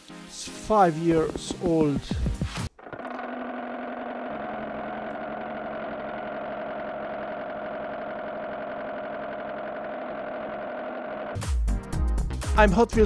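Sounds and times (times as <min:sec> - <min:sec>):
car engine idling: 0:03.0 - 0:11.4.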